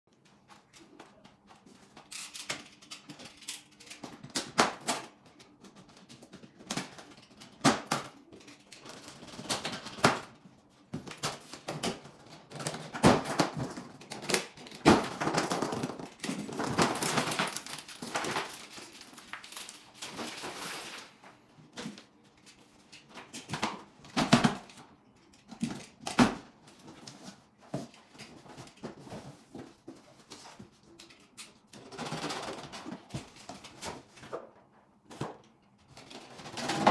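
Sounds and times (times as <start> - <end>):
cardboard rustling: 11.4 - 22.1.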